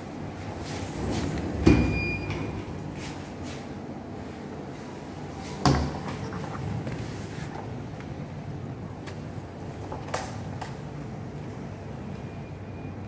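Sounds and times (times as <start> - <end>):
card reader beep: 1.8 - 2.6.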